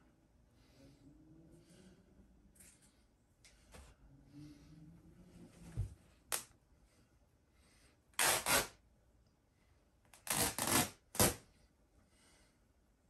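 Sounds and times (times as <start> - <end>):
fabric ripping: 8.2 - 8.8, 10.2 - 11.4.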